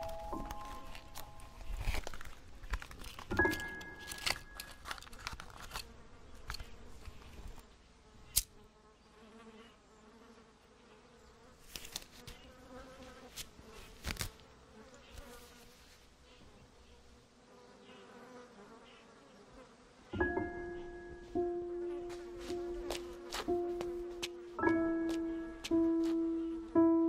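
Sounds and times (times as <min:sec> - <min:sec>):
handling clicks and rustles: 0:00.0 - 0:07.6
insect buzzing: 0:05.8 - 0:26.8.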